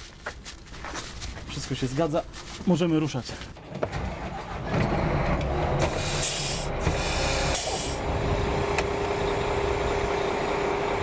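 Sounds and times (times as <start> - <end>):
bus engine drone: 3.3 - 11.0
air brake hisses: 5.8 - 8.0.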